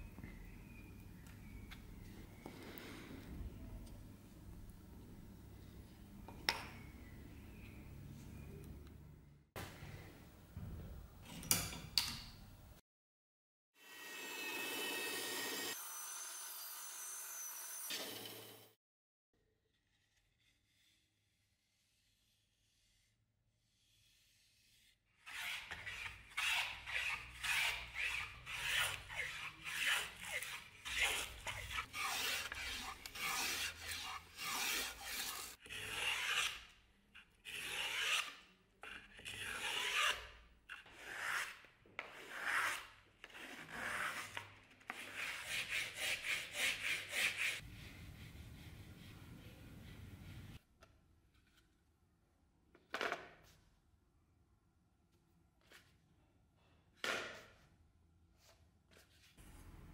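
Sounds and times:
abrasive block scraping wood: 0:23.8 - 0:36.6.

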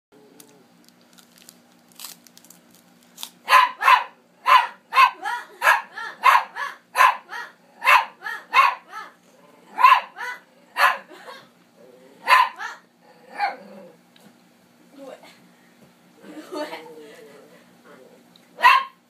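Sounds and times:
dog barking: 0:03.5 - 0:09.1, 0:09.7 - 0:11.1, 0:12.2 - 0:12.8, 0:18.6 - 0:19.0.

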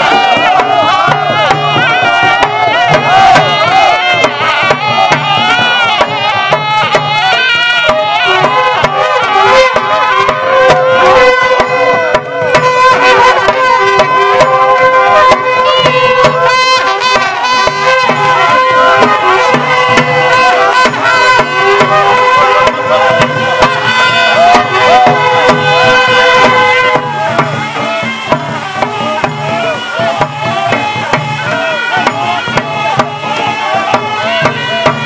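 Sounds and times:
drums beating steady rhythm: 0:00.0 - 0:35.0
wind instrument melody: 0:00.0 - 0:35.0.

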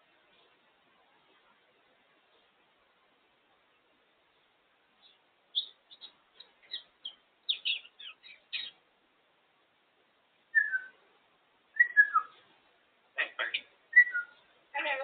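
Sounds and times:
parrot chirping: 0:05.0 - 0:08.8, 0:10.5 - 0:10.9, 0:11.7 - 0:12.4, 0:13.2 - 0:14.5.

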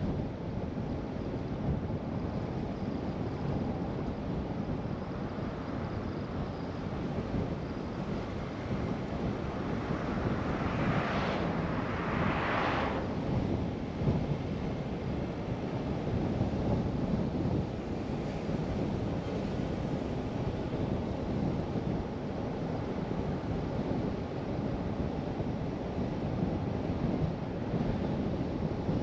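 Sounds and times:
car tyre and wind noise: 0:00.0 - 0:29.0
oncoming car swishing past: 0:08.2 - 0:13.6.

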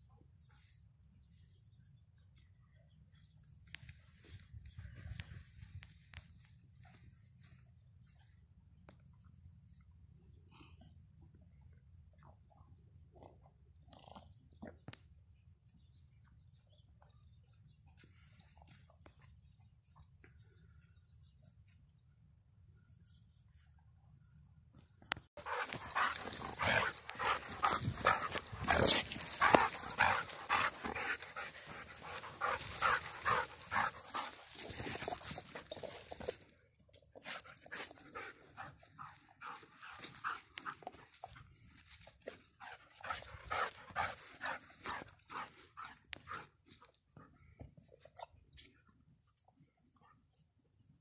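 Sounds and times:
dog panting: 0:25.4 - 0:35.9, 0:42.6 - 0:46.8.

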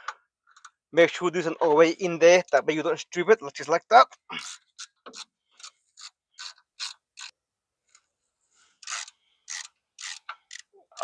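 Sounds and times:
ratchet wrench clicking: 0:08.8 - 0:11.0.

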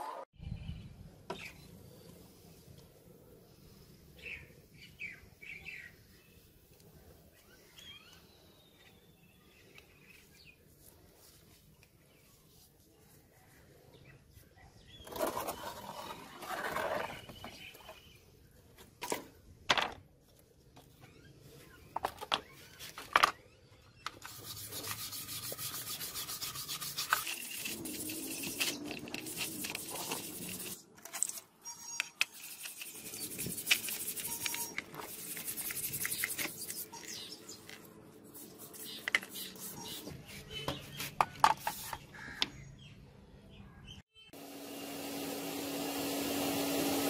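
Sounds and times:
wire brush scrubbing metal blade: 0:24.2 - 0:31.3.

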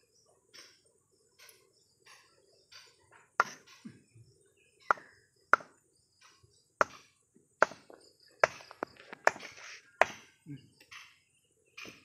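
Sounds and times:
machete chopping into fruit: 0:08.4 - 0:10.4.

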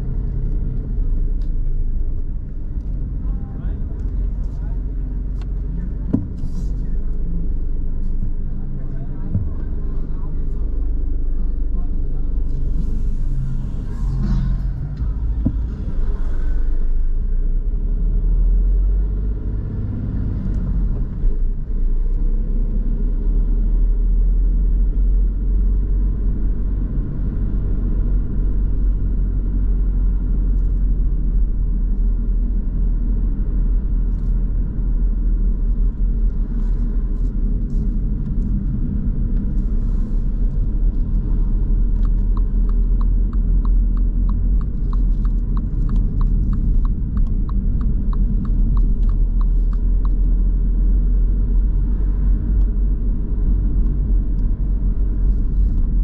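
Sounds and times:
car driving rumble from inside: 0:00.0 - 0:56.0
turn signal ticking: 0:40.9 - 0:50.6.

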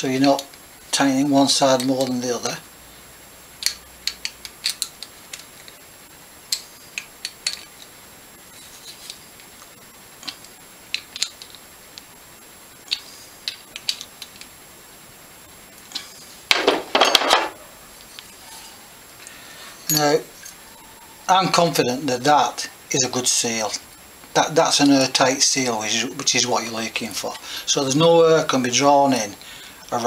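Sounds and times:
metal parts clattering: 0:16.5 - 0:17.6.

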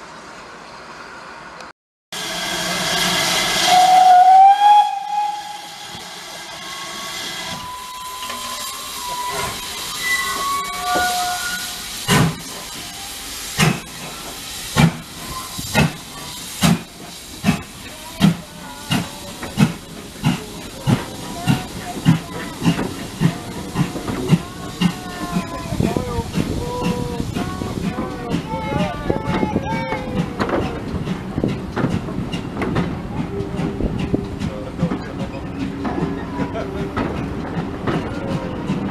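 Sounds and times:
steam whistle: 0:02.2 - 0:11.9
hissing steam: 0:02.2 - 0:38.9.

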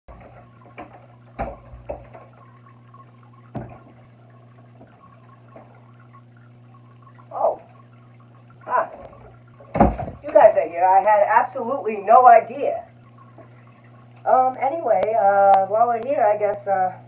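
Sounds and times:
low room hum: 0:00.1 - 0:17.0
sharp knocks: 0:09.7 - 0:10.3.

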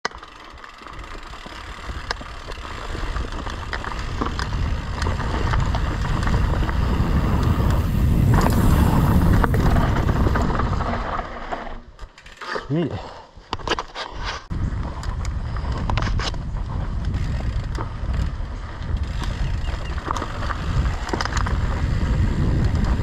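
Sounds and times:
bike clicks and rattles: 0:00.0 - 0:23.0
bike tyres rumbling on dirt: 0:00.1 - 0:12.2, 0:14.5 - 0:23.0
wind on microphone: 0:02.9 - 0:11.0, 0:14.5 - 0:23.0.

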